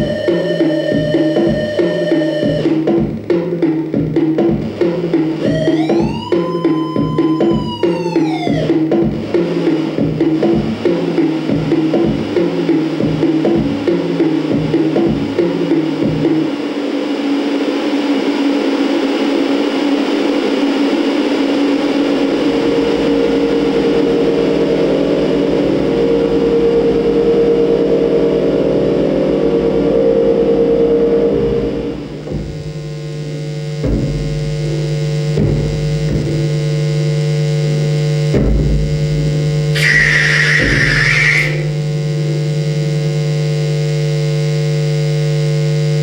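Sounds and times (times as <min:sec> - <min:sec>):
distorted electronic drone: 0:00.0 - 0:46.0
low hum: 0:21.0 - 0:36.4
low thumps: 0:32.0 - 0:32.9
bright high tone: 0:39.8 - 0:41.7.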